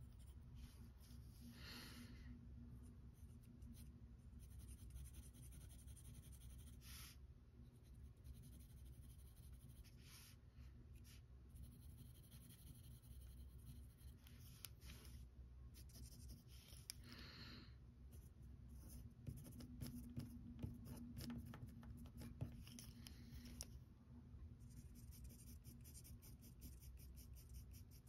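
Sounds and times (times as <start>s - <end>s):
pencil scratching on paper: 3.2s - 10.3s, 11.0s - 15.2s, 15.8s - 17.0s, 18.1s - 22.9s, 24.7s - 28.0s.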